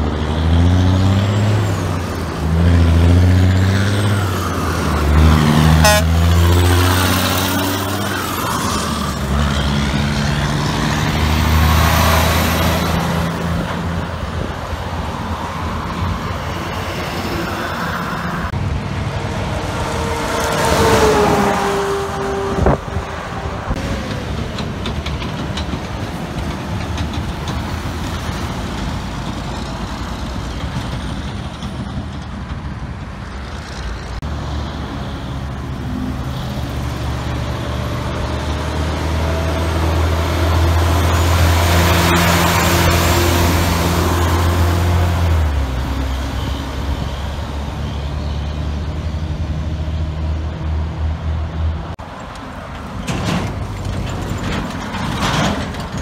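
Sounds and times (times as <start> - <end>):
heavy trucks passing: 0.0 - 56.0
tyre and road noise: 0.0 - 56.0.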